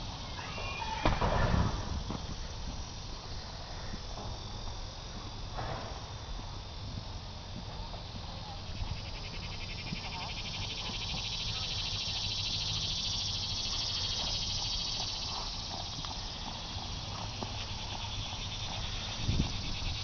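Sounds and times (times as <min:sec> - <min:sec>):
pulsing insect chorus: 0:00.0 - 0:20.0.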